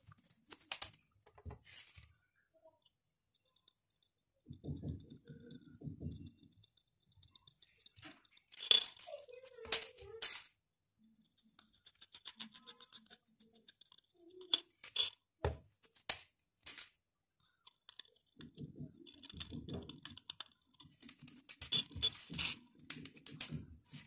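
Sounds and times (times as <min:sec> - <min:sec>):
rustling handling noise: 0:00.0 - 0:02.2, 0:08.1 - 0:10.6, 0:14.5 - 0:17.0, 0:20.8 - 0:24.0
clicks of tools and bottle caps: 0:08.0 - 0:09.1.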